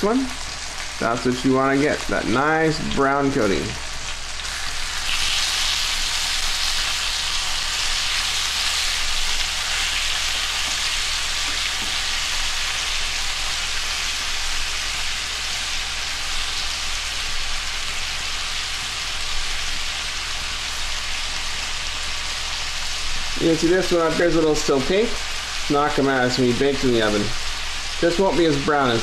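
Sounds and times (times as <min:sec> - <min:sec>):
chicken sizzling in a frying pan: 0:00.0 - 0:29.0
tongs turning meat: 0:04.1 - 0:14.5.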